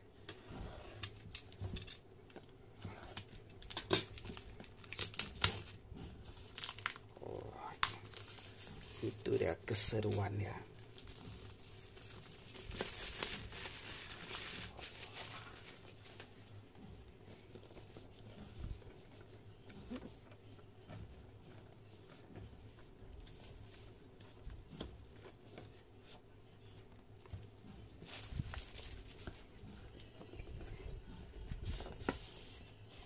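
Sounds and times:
plastic wrap crinkling and tearing: 3.1s - 16.5s, 28.0s - 29.6s.

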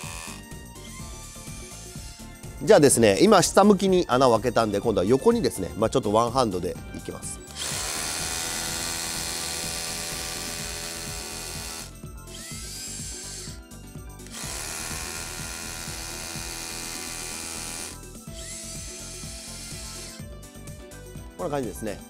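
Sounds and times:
hammer drill drilling into concrete: 0.0s - 0.5s, 7.5s - 13.6s, 14.2s - 20.2s.

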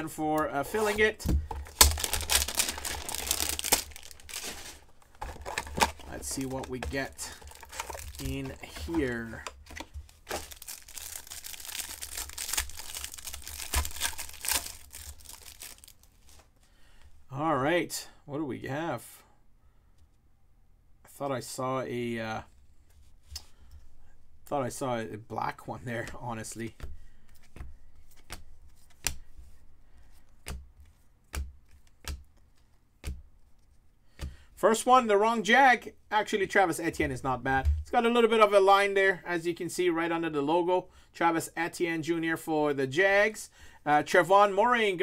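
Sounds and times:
packaging crinkling and tearing: 0.7s - 16.4s.

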